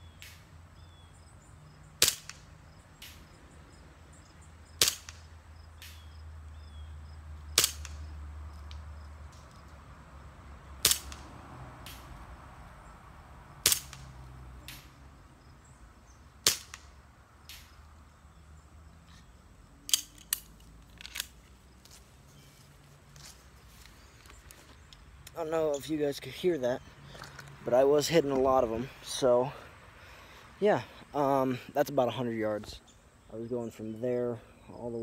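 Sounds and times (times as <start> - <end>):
faint sharp crack: 2.0 - 3.3, 4.8 - 6.1, 7.6 - 8.1, 10.8 - 12.2, 13.6 - 15.0, 16.4 - 17.8
pistol shots: 7.6 - 8.1, 13.6 - 14.1.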